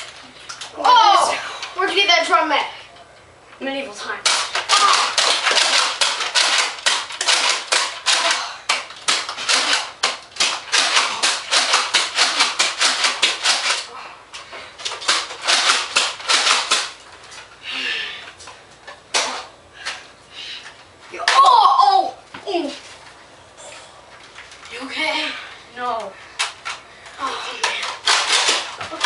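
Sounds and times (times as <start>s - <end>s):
dart blasters firing plastic clacks: 4.2s - 13.9s, 14.8s - 17.0s, 27.6s - 29.0s.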